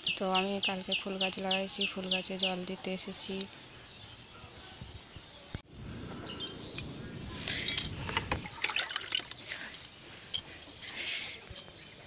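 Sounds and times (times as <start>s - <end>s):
water pouring onto soil: 8.1s - 9.4s.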